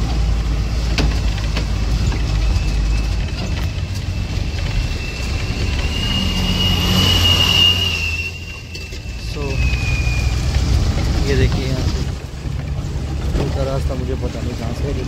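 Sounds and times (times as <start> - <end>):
bus engine rumble: 0.0 - 15.0
high whine: 2.0 - 12.0.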